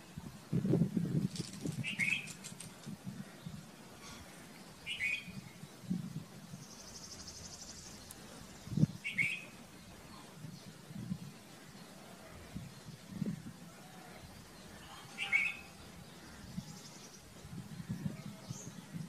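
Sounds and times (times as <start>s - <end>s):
bird chirping: 1.4s - 2.5s, 4.4s - 12.1s, 13.9s - 19.0s.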